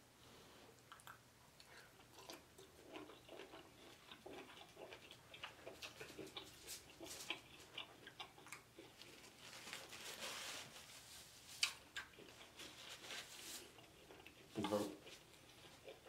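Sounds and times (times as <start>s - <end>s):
wet mouth clicks: 0.8s - 2.4s
chewing: 0.8s - 10.0s, 11.6s - 16.0s
paper napkin rustling: 9.3s - 11.6s.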